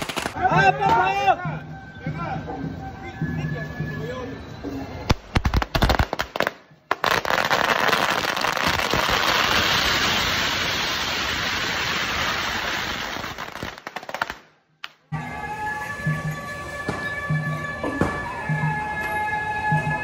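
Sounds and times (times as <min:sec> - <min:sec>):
firecrackers crackling: 0:00.0 - 0:01.2, 0:05.0 - 0:15.8
music: 0:00.0 - 0:09.9, 0:14.7 - 0:20.0.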